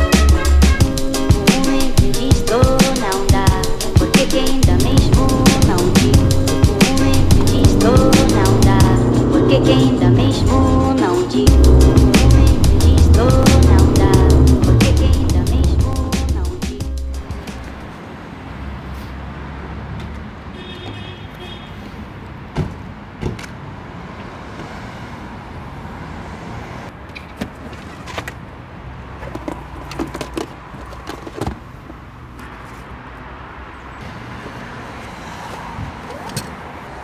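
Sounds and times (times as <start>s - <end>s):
low street rumble: 0.0s - 21.3s.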